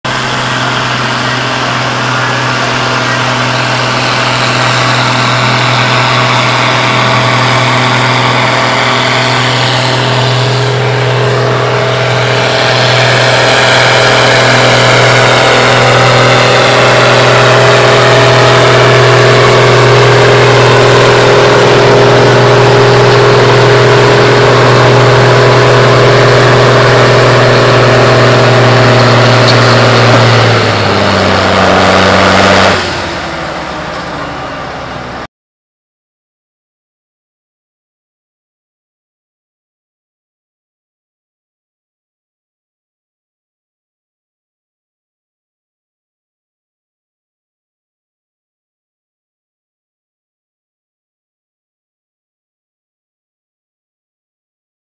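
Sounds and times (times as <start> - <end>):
tractor engines under heavy load: 0.1 - 35.3.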